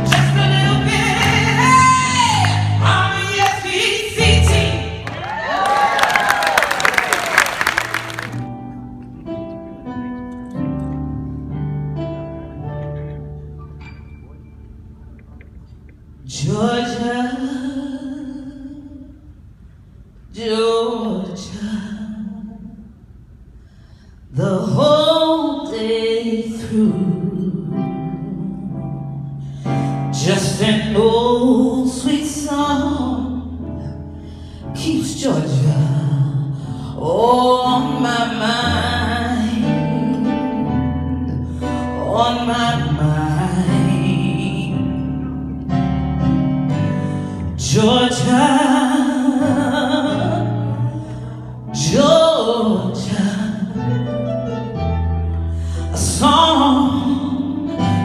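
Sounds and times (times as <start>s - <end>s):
woman singing into microphone: 0.0s - 5.9s, 30.1s - 33.6s, 34.7s - 45.2s, 47.6s - 51.0s, 51.7s - 54.0s, 55.9s - 58.0s
electric keyboard chords: 7.5s - 16.3s, 32.5s - 58.0s.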